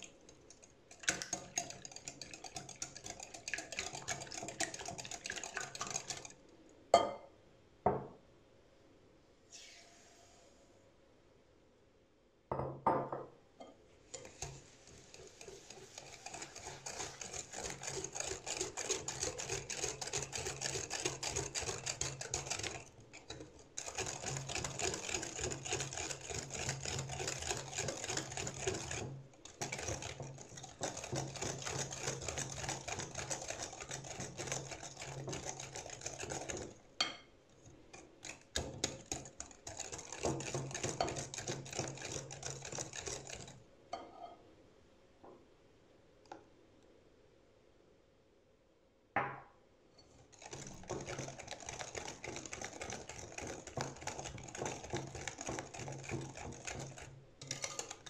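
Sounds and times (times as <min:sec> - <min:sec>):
whisk beating in a glass bowl: 0:00.0 - 0:06.4, 0:13.6 - 0:43.6, 0:50.1 - 0:58.0
knock: 0:12.5 - 0:13.3, 0:49.2 - 0:49.5.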